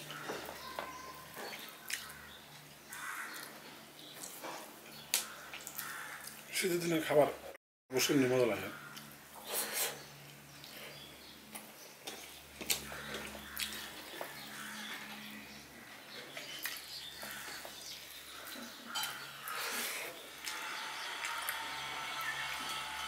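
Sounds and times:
chewing: 0.0 - 2.8, 8.9 - 15.3, 16.2 - 20.6.

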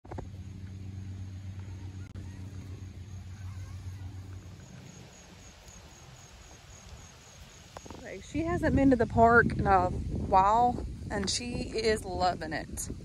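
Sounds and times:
vehicle engine humming: 0.0 - 10.5
pulsing insect chirp: 0.1 - 9.0.

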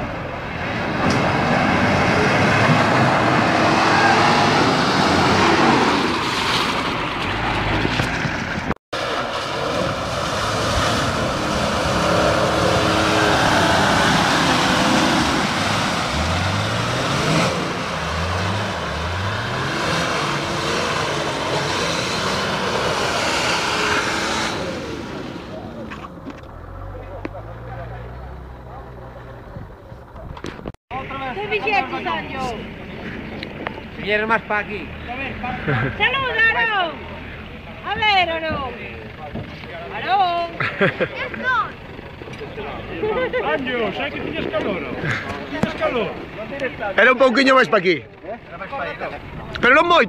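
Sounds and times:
engine revving through water: 0.0 - 8.3, 9.0 - 29.4
off-road engine revving: 0.0 - 50.0.

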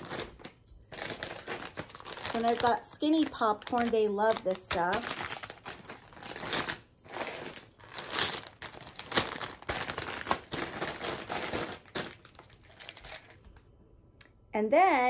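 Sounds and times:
plastic bags crinkling: 0.0 - 13.6.

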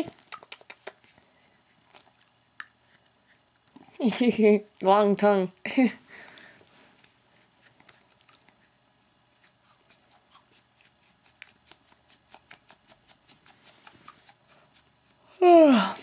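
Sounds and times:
dog licking with wet clicks: 0.2 - 1.2, 1.8 - 3.8, 7.0 - 8.6, 10.8 - 13.1.

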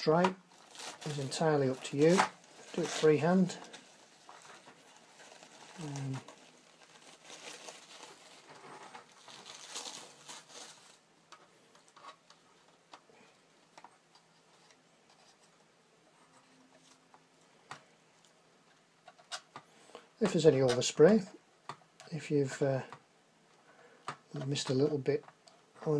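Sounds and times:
tape being peeled off plastic: 0.6 - 11.0.

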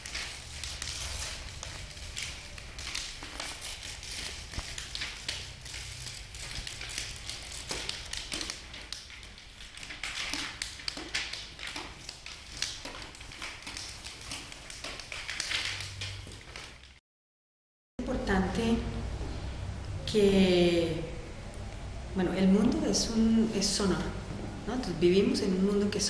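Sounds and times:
paper crumpling and rustling: 0.0 - 17.0.

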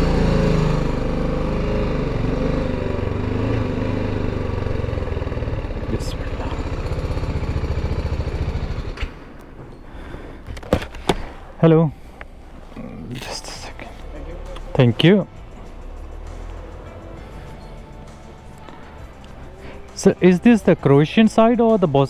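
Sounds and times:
motorcycle engine at low revs: 0.0 - 9.3.

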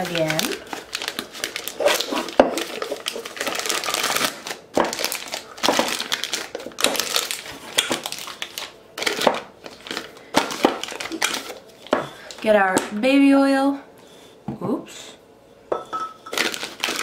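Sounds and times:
plastic piping bag crinkling: 0.0 - 12.5, 16.3 - 17.0.

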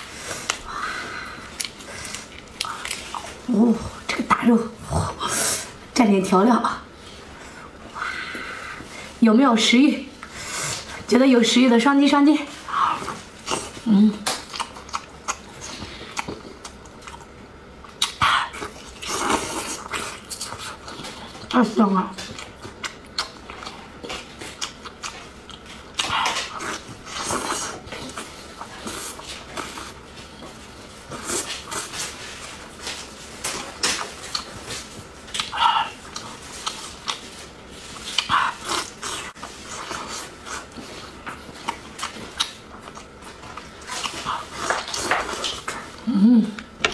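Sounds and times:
close chewing with lip-smacks: 12.9 - 21.6, 22.2 - 30.6, 32.9 - 46.0.

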